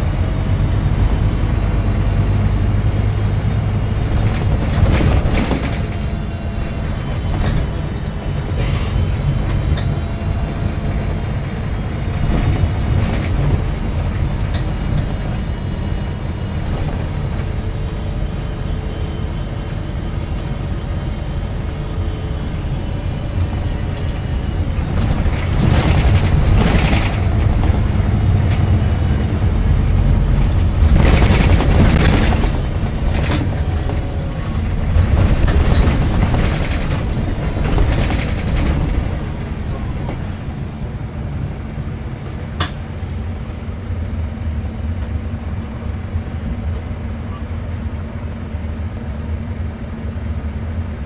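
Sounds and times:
bus engine and road rumble: 0.0 - 51.0
rattling and knocking: 0.9 - 18.7, 22.8 - 40.5.

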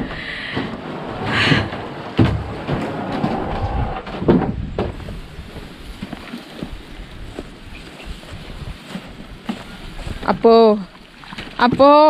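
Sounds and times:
knocks: 0.5 - 5.0
plastic drum scraping on wooden floor: 0.5 - 5.0
dragging over grass: 0.6 - 10.7.

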